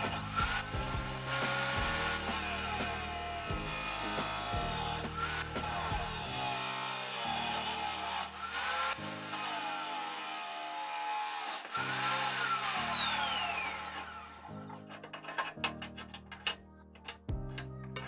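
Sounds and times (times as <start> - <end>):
cut-off saw grinding steel: 0.0 - 18.0
metallic clicks of saw vise: 14.9 - 18.0.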